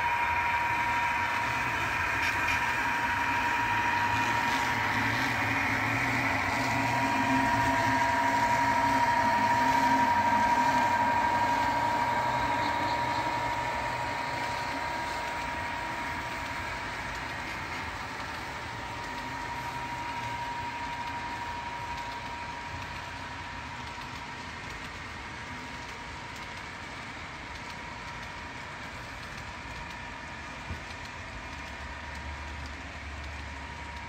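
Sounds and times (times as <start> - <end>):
high whine: 0.0 - 30.9
model train rolling: 0.0 - 34.0.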